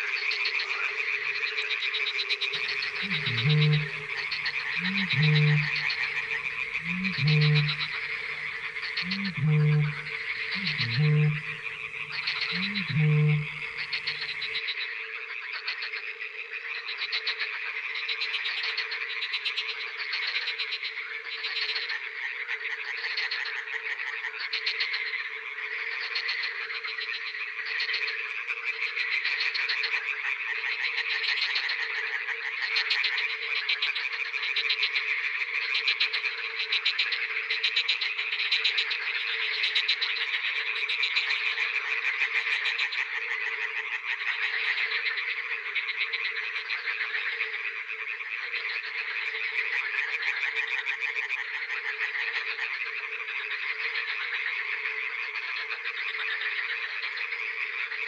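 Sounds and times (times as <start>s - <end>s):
frogs croaking chorus: 0.0s - 58.0s.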